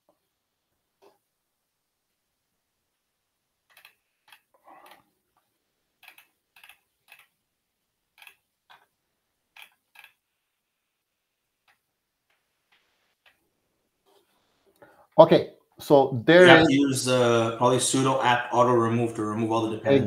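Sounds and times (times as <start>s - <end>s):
keyboard and mouse clicks: 3.7s - 5.0s, 6.0s - 7.3s, 8.2s - 8.9s, 9.6s - 10.2s.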